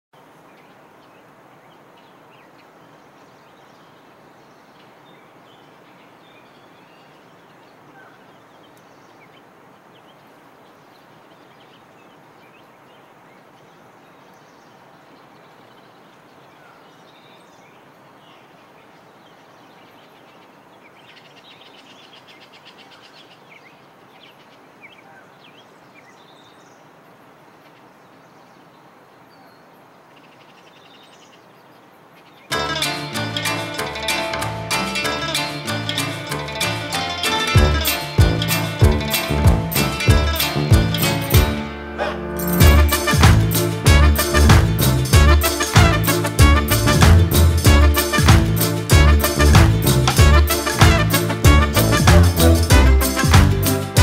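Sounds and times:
steady background hiss: 0.2s - 51.4s
rapid buzzing trill: 32.5s - 41.6s, 42.2s - 54.0s.

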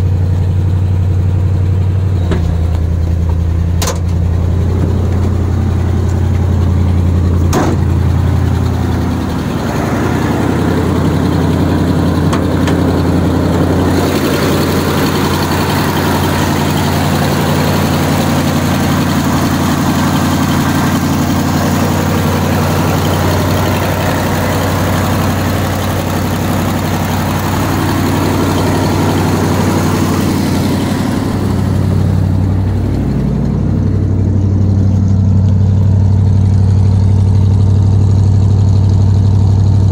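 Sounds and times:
truck engine idling: 0.0s - 39.9s.

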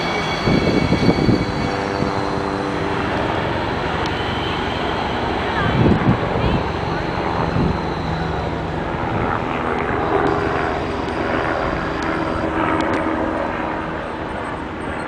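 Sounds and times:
light rail car rumbling past: 0.0s - 9.0s.

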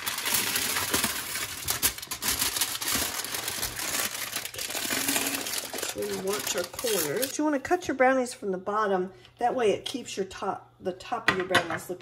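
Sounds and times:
aluminum foil crinkling: 0.0s - 7.4s.

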